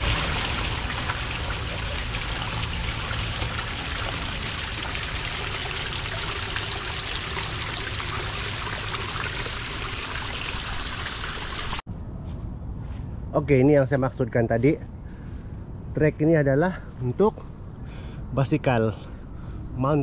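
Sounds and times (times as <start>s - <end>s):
stream trickling over rocks: 0.0s - 11.8s.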